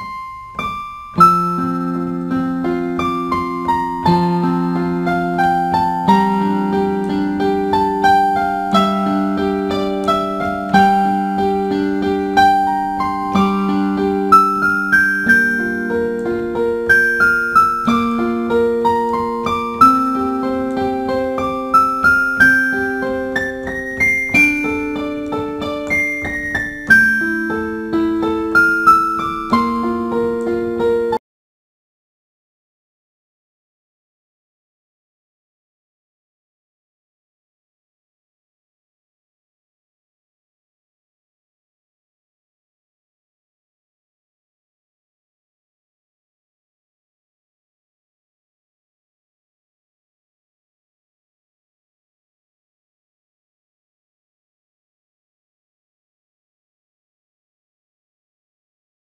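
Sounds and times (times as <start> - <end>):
solo piano piece: 0.0 - 31.2.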